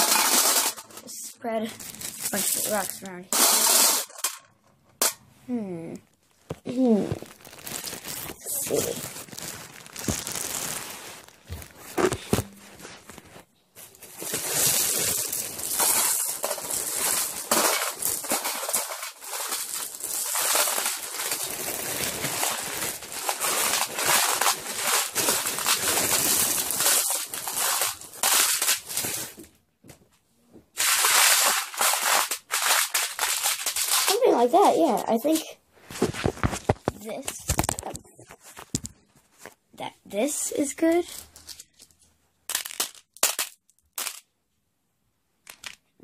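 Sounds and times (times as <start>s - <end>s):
plastic bag crinkling: 0.0s - 4.3s, 6.2s - 29.5s, 30.8s - 39.5s, 40.6s - 44.2s
stones clattering: 42.5s - 44.2s.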